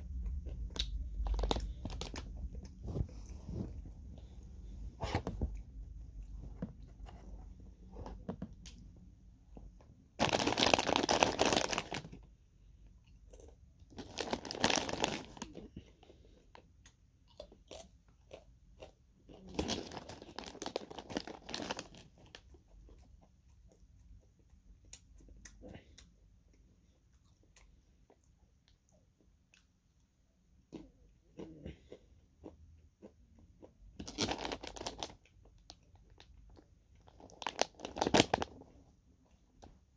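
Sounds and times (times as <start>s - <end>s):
plastic snack bag crinkling: 0.5s - 2.8s, 10.2s - 12.3s, 13.9s - 15.7s, 19.3s - 22.6s, 34.0s - 38.8s
chewing crunchy chips: 13.0s - 29.7s, 30.7s - 38.6s.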